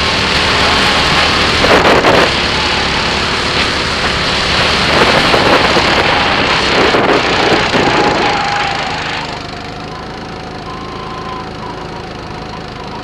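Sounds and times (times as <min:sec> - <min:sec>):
loud rushing noise: 0:00.0 - 0:09.6
kart engine droning: 0:00.0 - 0:13.0.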